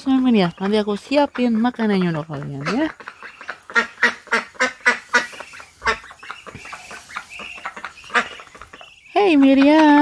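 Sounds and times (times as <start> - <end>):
ducks quacking: 0.0 - 10.0.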